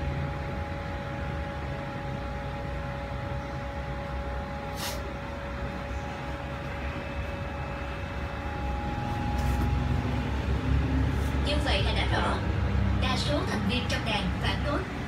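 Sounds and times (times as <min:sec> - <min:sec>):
machine hum with low rumble: 0:00.0 - 0:15.0
short hiss: 0:04.7 - 0:05.0.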